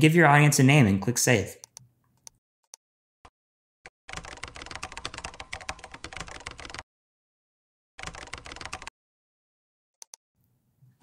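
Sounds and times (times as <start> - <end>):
computer keyboard typing: 4.1 - 6.8, 8.0 - 8.9.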